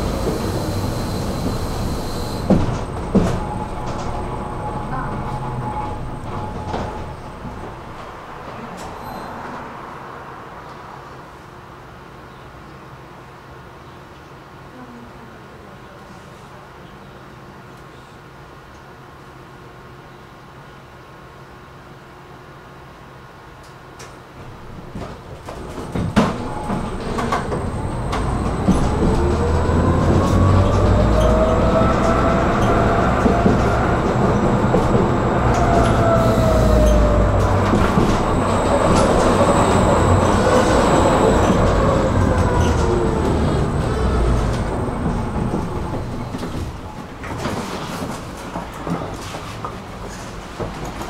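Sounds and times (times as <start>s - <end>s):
tram motors whining: 0.0s - 9.5s, 24.4s - 49.1s
wheels rumbling on rails: 0.0s - 12.1s, 24.0s - 51.0s.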